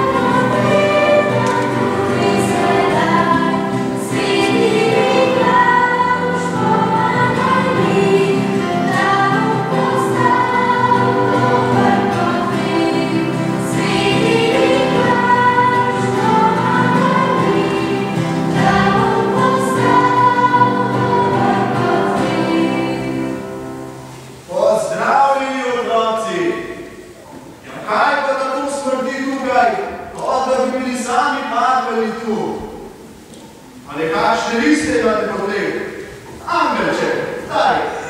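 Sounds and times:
choir singing: 0:00.0 - 0:26.6.

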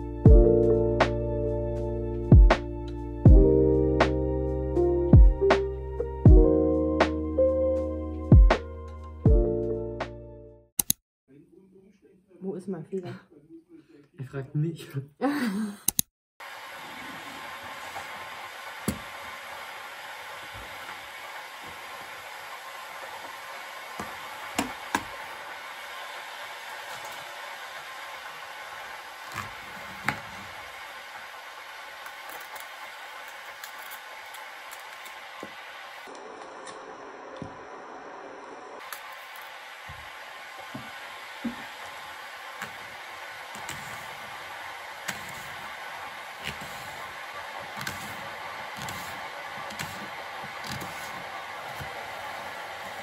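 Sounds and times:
water rushing to the boil: 0:16.4 - 0:53.0
steady hiss: 0:38.8 - 0:53.0.

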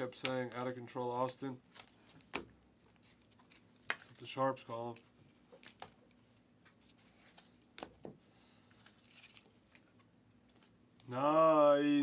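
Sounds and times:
trading cards flipped by hand: 0:01.7 - 0:04.2, 0:04.9 - 0:08.1, 0:08.7 - 0:11.2.

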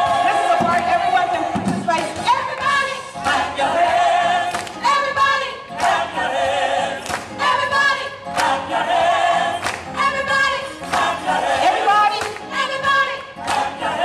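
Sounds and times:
choir singing in harmony: 0:00.0 - 0:14.0
sharp hand claps: 0:01.9 - 0:03.5, 0:04.5 - 0:04.8, 0:05.8 - 0:06.0, 0:07.0 - 0:07.4, 0:08.3 - 0:08.6, 0:09.6 - 0:10.0, 0:10.8 - 0:12.5, 0:13.4 - 0:13.7.

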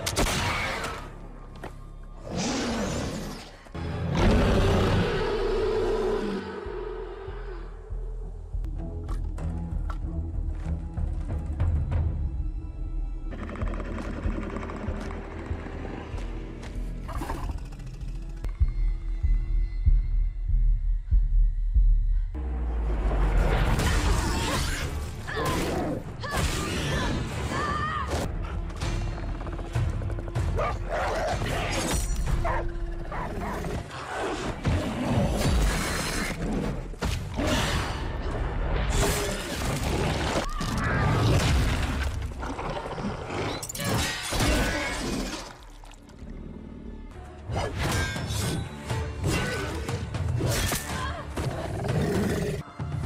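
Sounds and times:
film score music: 0:00.0 - 0:53.0
low droning score: 0:05.0 - 0:26.2.

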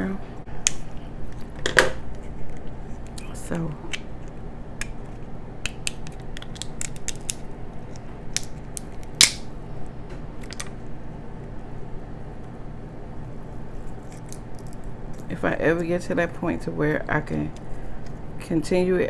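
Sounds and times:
crab shell cracking and snapping: 0:03.9 - 0:09.5, 0:13.9 - 0:15.3.

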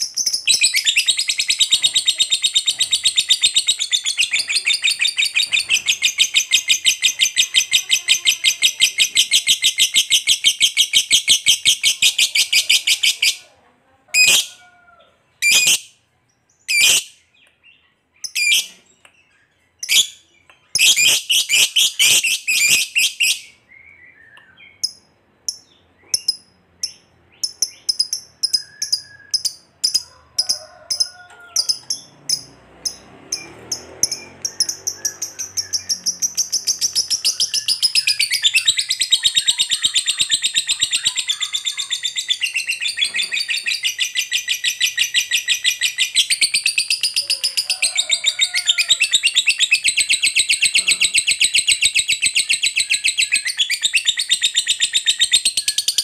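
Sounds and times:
lovebird sharp chirps: 0:00.0 - 0:07.8, 0:18.2 - 0:31.0, 0:31.6 - 0:47.2
lovebird chattering call: 0:31.6 - 0:56.0.

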